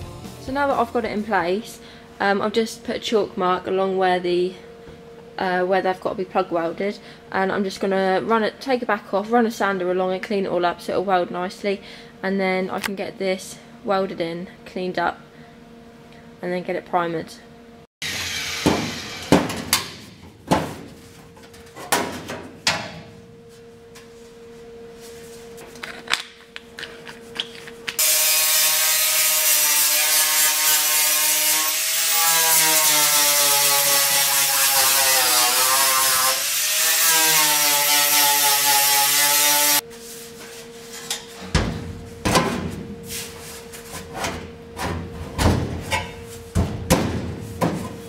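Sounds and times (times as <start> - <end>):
electric sander grinding steel: 18.0 - 19.4, 28.0 - 39.8.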